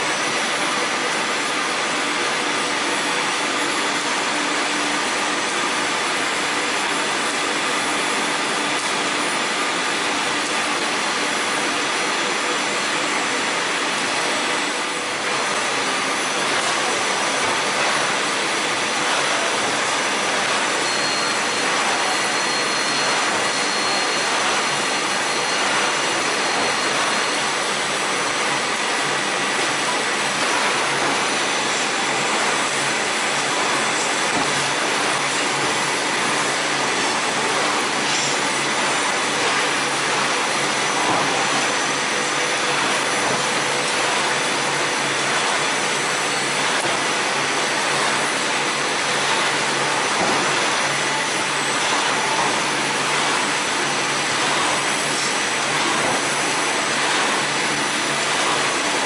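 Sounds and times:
faint machine whines: 0:19.6 - 0:59.0.

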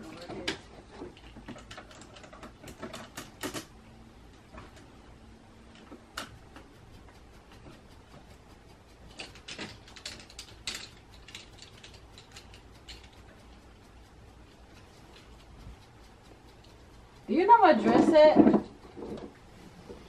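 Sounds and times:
faint steady hum: 0:00.0 - 0:20.0
sharp clicks and light taps: 0:00.0 - 0:20.0.

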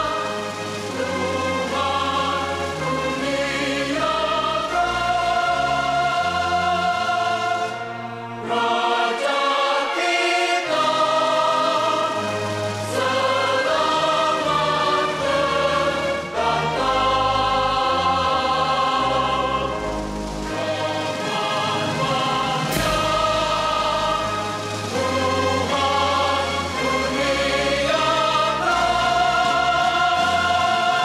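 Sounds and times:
choir singing with orchestra: 0:00.0 - 0:31.0.

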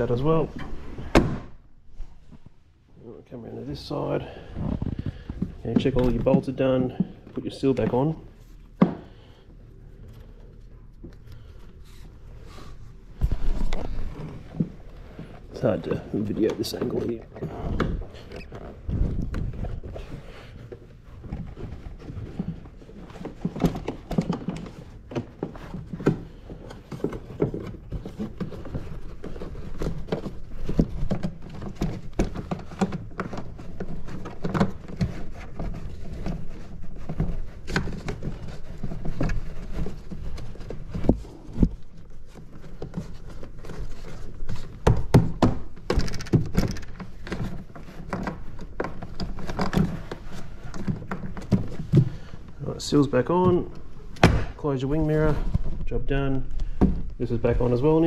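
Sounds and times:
rubber seal thunking and rubbing: 0:13.1 - 0:52.6, 0:53.4 - 0:54.6.

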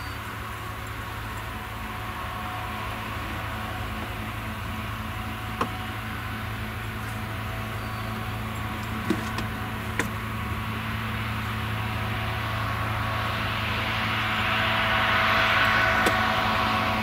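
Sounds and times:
forage harvester chopping: 0:05.5 - 0:06.3, 0:08.7 - 0:10.4, 0:16.0 - 0:16.4.

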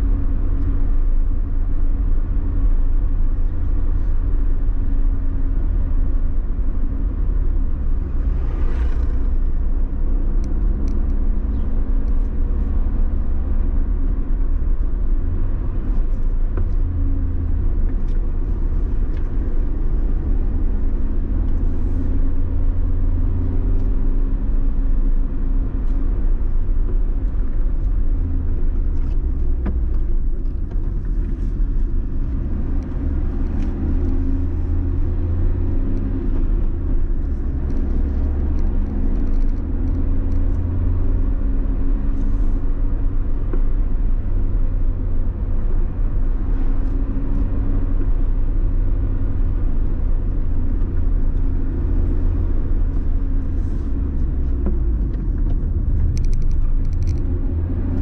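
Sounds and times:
engine and road rumble: 0:00.0 - 0:58.0
faint engine hum: 0:00.0 - 0:58.0.

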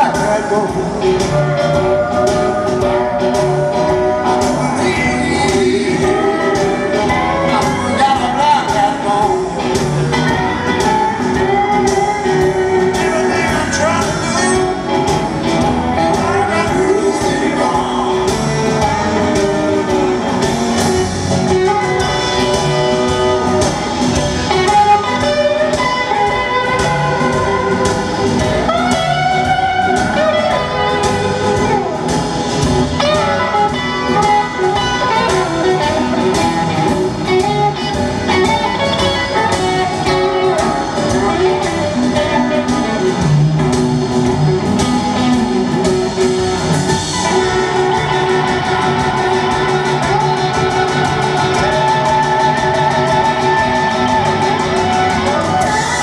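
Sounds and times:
person singing: 0:00.0 - 0:10.4, 0:11.5 - 0:15.1, 0:15.9 - 0:20.7
drums: 0:00.0 - 0:56.0
electric guitar: 0:00.0 - 0:56.0
keyboards: 0:00.0 - 0:56.0.

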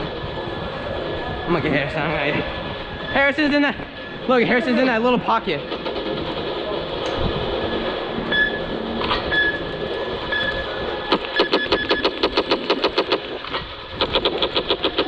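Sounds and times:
steady rumbling noise: 0:00.0 - 0:15.0
short beeps: 0:07.7 - 0:08.7
laser tag gun rapid bursts: 0:11.1 - 0:15.0.

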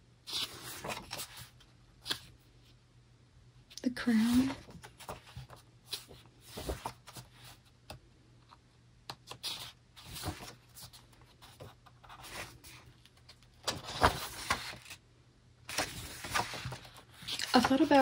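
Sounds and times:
pages turning: 0:00.3 - 0:02.3, 0:04.2 - 0:07.6, 0:09.3 - 0:15.0, 0:15.7 - 0:18.0.

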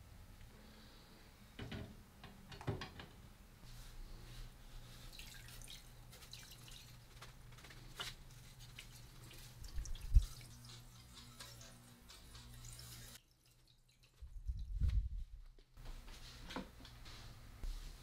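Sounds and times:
faint drips and ticks: 0:05.2 - 0:14.7.

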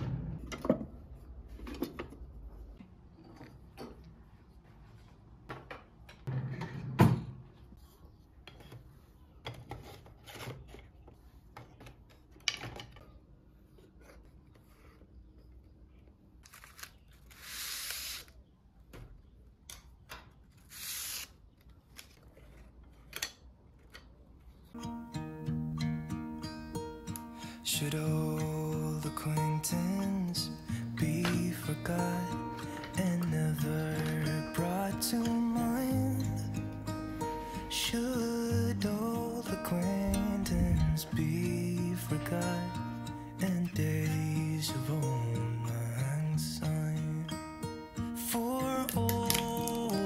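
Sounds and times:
hiss or tearing rush: 0:17.3 - 0:18.3, 0:20.7 - 0:21.3.

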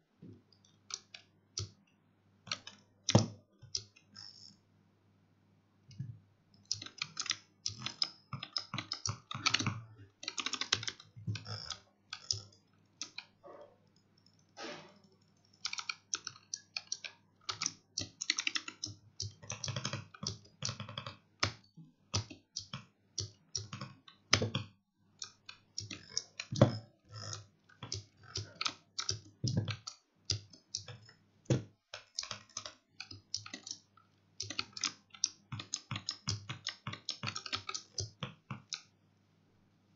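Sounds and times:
keyboard keystrokes: 0:06.7 - 0:13.3, 0:34.4 - 0:38.9.

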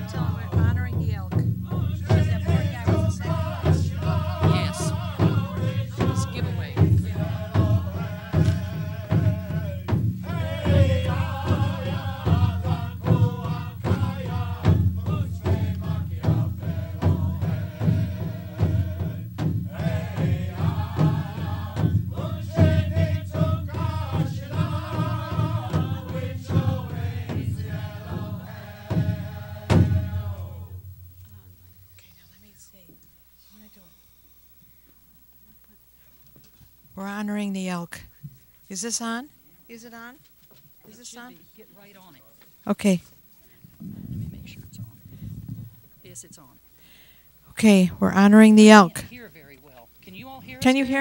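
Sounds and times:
large drum beat: 0:00.0 - 0:32.0
group singing in chorus: 0:00.0 - 0:32.1, 0:46.8 - 0:49.0, 0:50.5 - 0:51.0.

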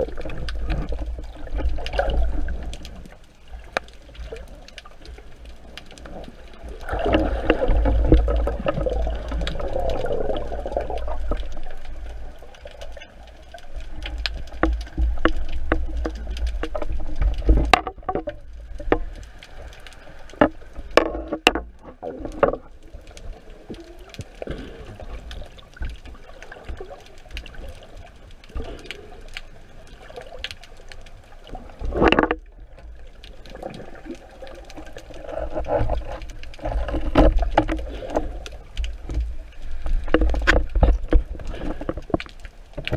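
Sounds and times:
underwater water rushing: 0:00.0 - 0:42.9
speargun clicks and knocks: 0:14.1 - 0:19.2, 0:20.3 - 0:22.6, 0:39.9 - 0:42.9.

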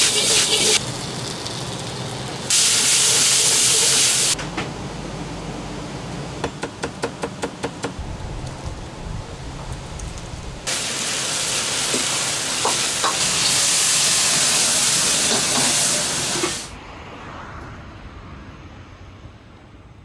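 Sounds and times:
wok sizzling hiss: 0:00.0 - 0:04.4, 0:08.0 - 0:16.8.

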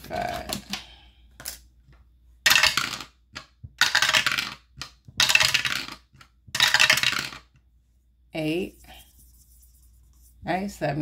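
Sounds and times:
dice clattering: 0:02.4 - 0:07.6.

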